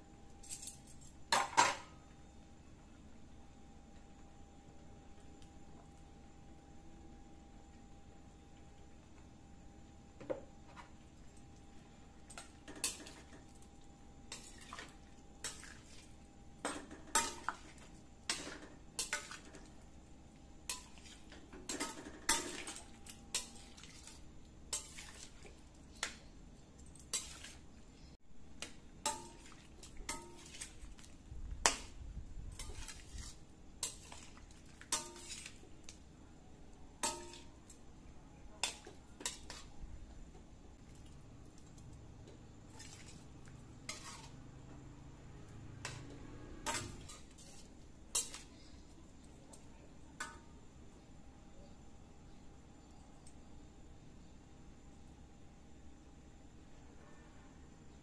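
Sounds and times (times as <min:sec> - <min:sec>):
curry being stirred: 0:28.7 - 0:36.0, 0:42.7 - 0:44.4
metal spatula scraping a wok: 0:32.5 - 0:35.6, 0:43.8 - 0:44.5, 0:45.8 - 0:48.5.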